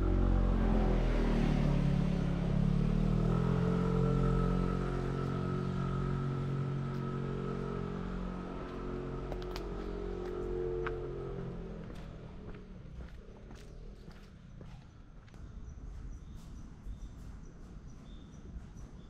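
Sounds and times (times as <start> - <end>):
vehicle engine passing by: 0.0 - 14.2.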